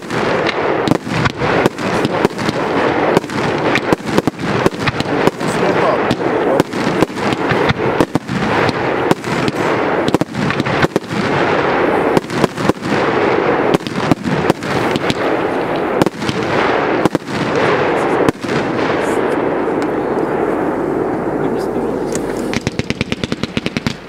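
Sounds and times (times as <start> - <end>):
firework bangs: 0.0 - 24.0
firework crackle: 0.0 - 24.0.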